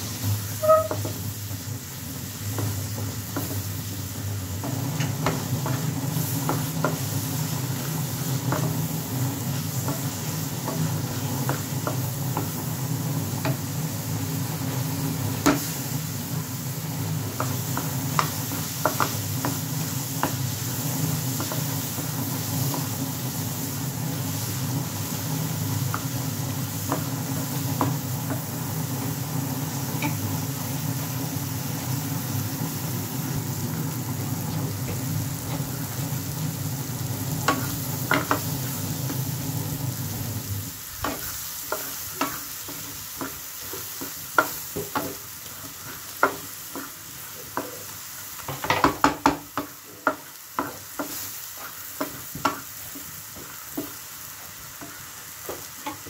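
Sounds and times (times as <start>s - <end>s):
lentils sizzling in a pan: 0.0s - 56.0s
wooden spatula scraping a pan: 0.5s - 1.2s, 41.0s - 54.0s.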